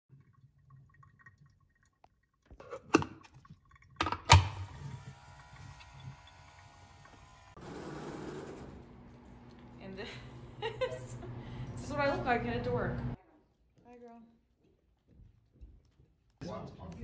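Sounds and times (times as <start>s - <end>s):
milk frother motor whirring: 4.0s - 13.1s.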